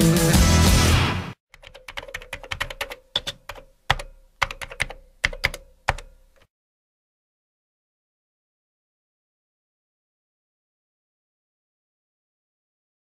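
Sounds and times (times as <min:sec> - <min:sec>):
music: 0:00.0 - 0:01.4
computer keyboard typing: 0:01.5 - 0:06.5.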